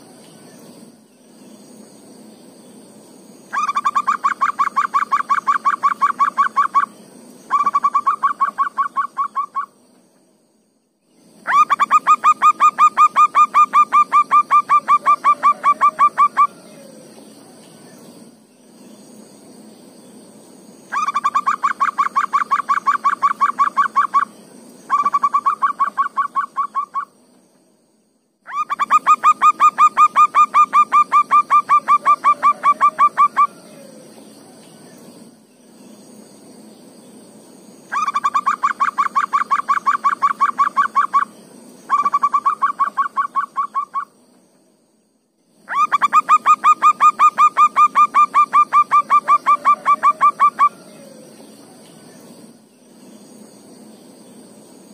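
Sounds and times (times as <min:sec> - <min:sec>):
high insect buzz: 0:00.0 - 0:54.9
dove cooing: 0:11.5 - 0:17.1, 0:28.5 - 0:34.2, 0:45.7 - 0:51.5.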